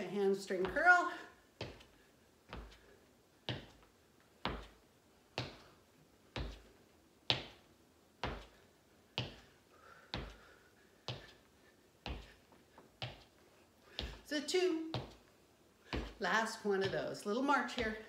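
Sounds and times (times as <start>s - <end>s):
footsteps on hardwood floor: 1.6s - 2.9s, 3.5s - 4.8s, 6.4s - 6.7s, 11.1s - 11.4s, 12.1s - 13.3s, 13.9s - 14.3s, 14.9s - 15.3s, 15.9s - 16.2s, 16.8s - 18.0s.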